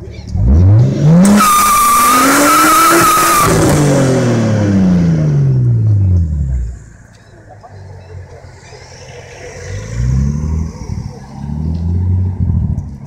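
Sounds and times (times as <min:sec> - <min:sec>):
car engine revving hard: 0:00.4 - 0:06.0
tyres screeching: 0:01.1 - 0:04.1.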